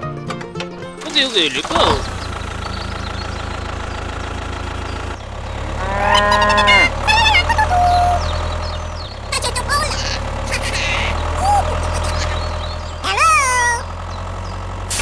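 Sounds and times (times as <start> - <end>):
small tractor engine drone: 0.5 - 15.0
squeaky voice-like calls: 5.8 - 8.4, 9.3 - 13.9.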